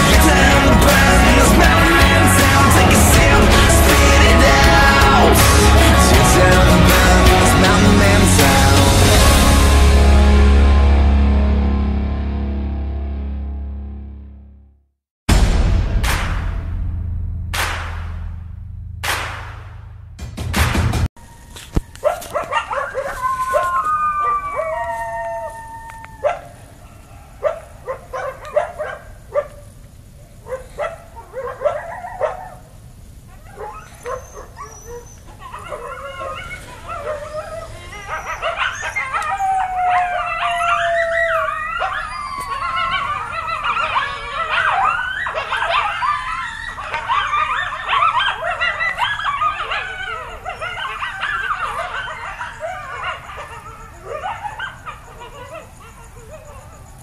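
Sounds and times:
coyotes and wolves howling: 0:00.0 - 0:11.2, 0:21.2 - 0:57.0.

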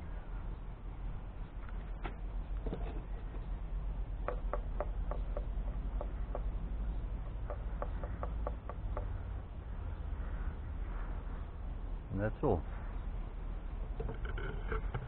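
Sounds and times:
wooden stick tapping fiberglass: 0:04.2 - 0:06.6, 0:07.2 - 0:09.2.

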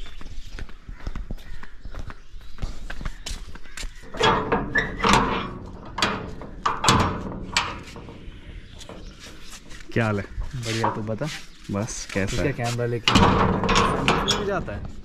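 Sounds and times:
bangs on sheet-metal gate: 0:04.0 - 0:11.1, 0:13.1 - 0:14.8.

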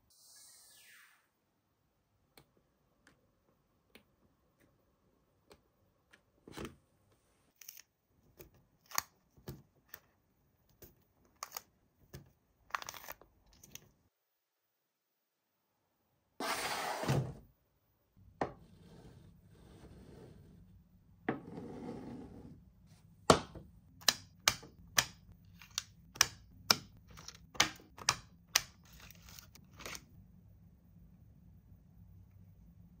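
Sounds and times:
faint clicks and taps: 0:02.3 - 0:04.8.

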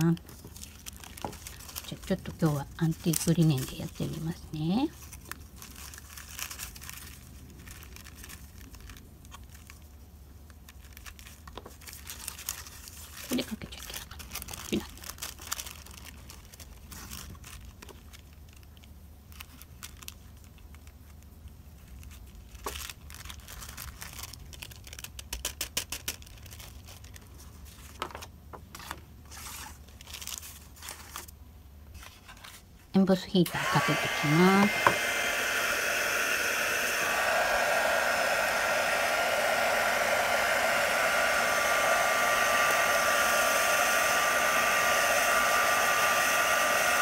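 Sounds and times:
tissue paper crinkling: 0:00.0 - 0:10.0, 0:10.7 - 0:21.2, 0:21.8 - 0:28.0, 0:28.8 - 0:31.3.

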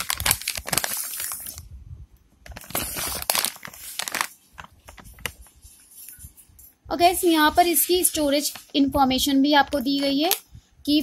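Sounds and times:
plastic packet crinkling: 0:00.0 - 0:01.6, 0:02.5 - 0:05.6.

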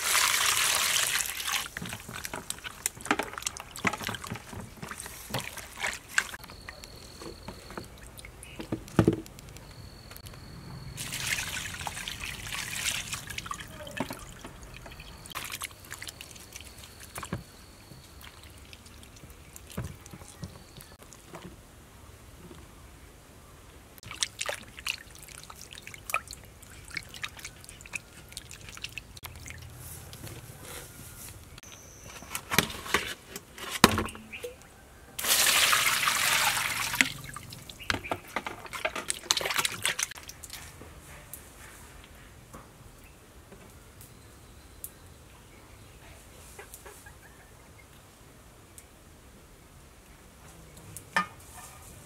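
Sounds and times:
small water splashes: 0:00.0 - 0:06.4, 0:11.0 - 0:21.2, 0:24.0 - 0:29.8, 0:35.2 - 0:40.6
hands rubbing mushrooms in water: 0:00.0 - 0:08.5, 0:24.0 - 0:30.3
water trickling into basin: 0:00.0 - 0:08.7, 0:10.9 - 0:21.0, 0:24.0 - 0:29.9, 0:34.1 - 0:40.6.

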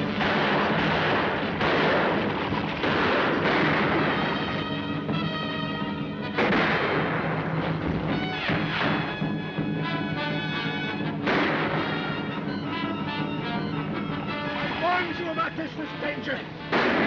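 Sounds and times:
gunshots: 0:00.0 - 0:17.0
orchestral chase music: 0:00.0 - 0:17.0
galloping horses and stagecoach: 0:11.9 - 0:16.5.

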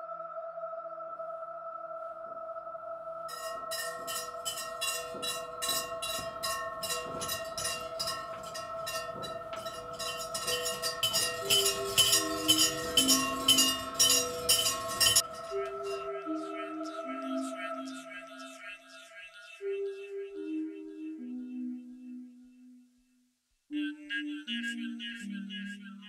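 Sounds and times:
ambient music drone: 0:00.0 - 0:19.0
ringing bell-like strikes: 0:03.3 - 0:17.5.

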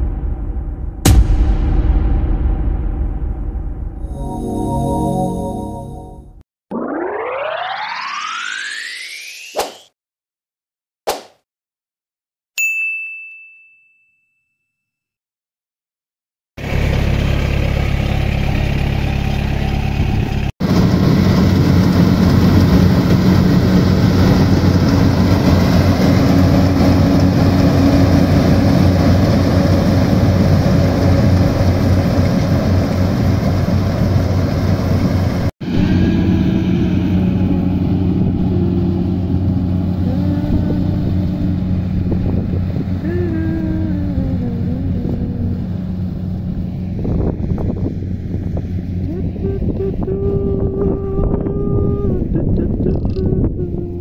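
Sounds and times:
notification bell ding: 0:04.1 - 0:06.3, 0:12.6 - 0:14.8
combine harvester engine running: 0:16.6 - 0:43.3, 0:44.5 - 0:50.1.

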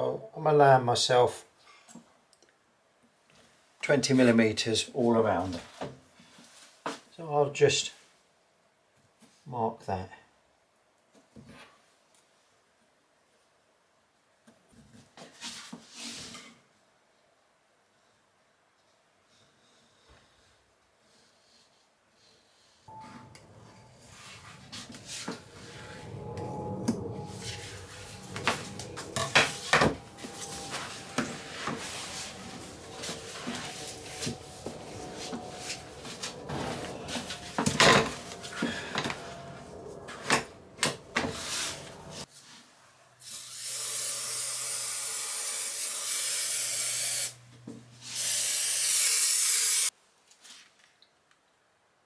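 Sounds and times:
aerosol can hissing: 0:43.3 - 0:47.4, 0:48.1 - 0:49.9.

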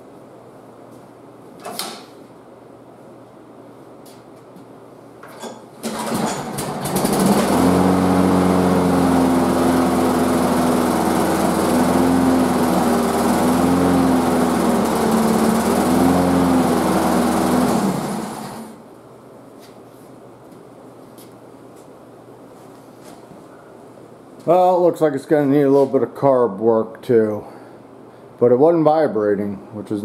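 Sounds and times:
lawn mower engine running: 0:05.8 - 0:18.8.

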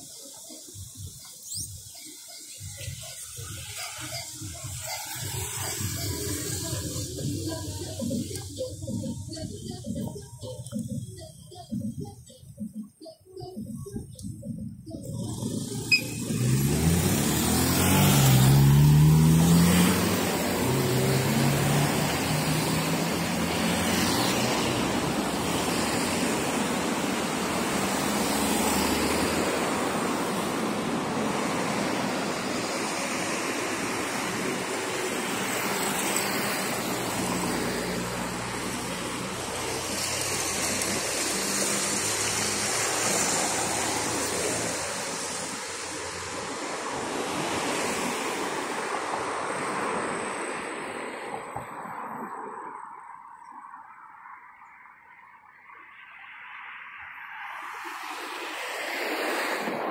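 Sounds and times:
rush of passing traffic: 0:00.0 - 0:59.9
vehicle engine accelerating: 0:13.5 - 0:46.5.

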